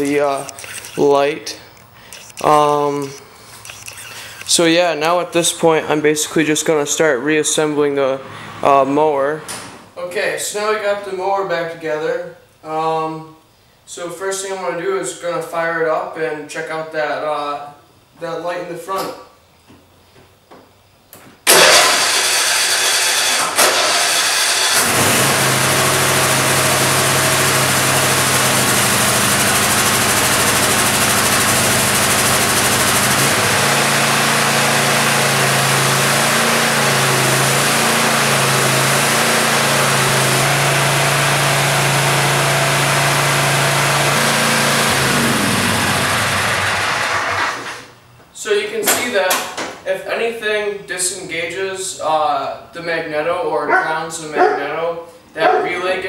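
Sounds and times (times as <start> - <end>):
electric starter cranking engine: 21.4 - 47.9
mower engine running: 21.5 - 47.7.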